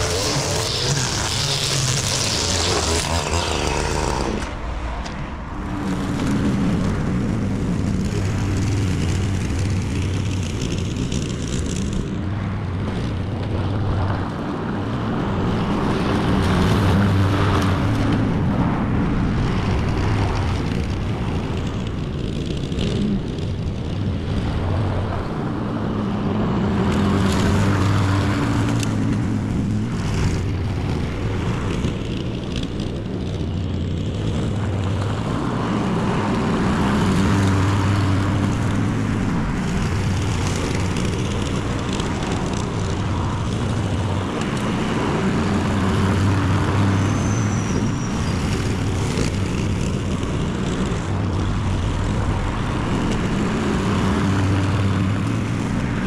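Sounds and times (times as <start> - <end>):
string trimmer whining: 0.0 - 13.2, 19.8 - 24.1, 26.4 - 56.0
lawn mower cutting grass: 0.0 - 56.0.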